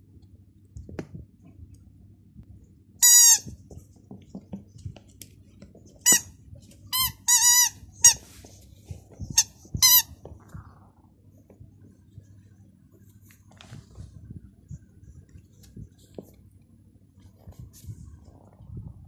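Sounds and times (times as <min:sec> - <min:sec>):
rubber squeaky toy squeaks: 0:03.0 - 0:03.6, 0:06.0 - 0:08.2, 0:09.3 - 0:10.2.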